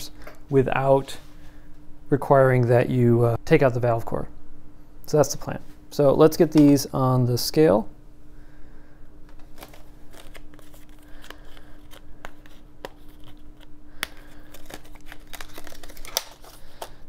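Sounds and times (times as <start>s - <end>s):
faint steady hum: 0.0s - 17.0s
plastic packaging crinkling: 9.4s - 17.0s.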